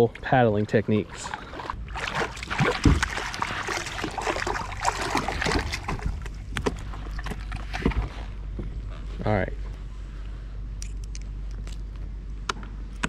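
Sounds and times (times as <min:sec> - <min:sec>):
fish splashing in water: 0:01.2 - 0:08.0.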